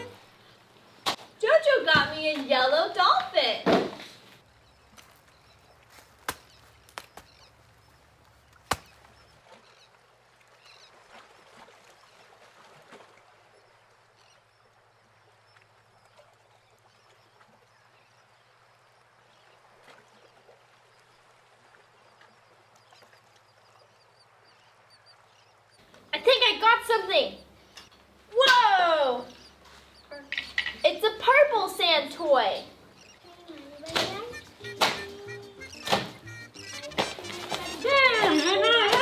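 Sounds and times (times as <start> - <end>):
plastic toys handling noises: 36.9 - 37.9.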